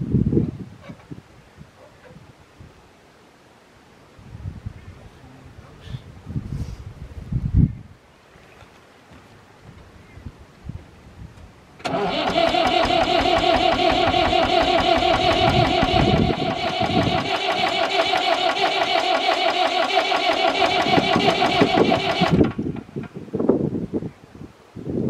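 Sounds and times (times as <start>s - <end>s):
diesel engine cranking on starter: 11.8s - 23.2s.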